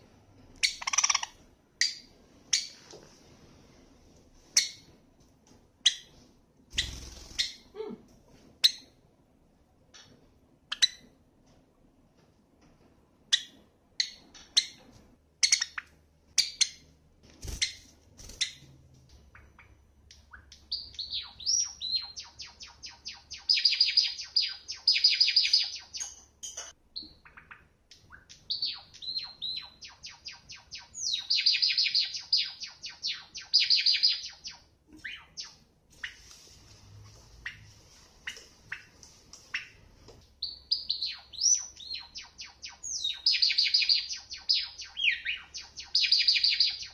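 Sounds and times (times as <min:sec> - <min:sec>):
sparrow chirping and trilling: 0:00.6 - 0:02.8, 0:06.7 - 0:07.7, 0:13.3 - 0:18.7, 0:19.3 - 0:36.2, 0:40.4 - 0:46.9.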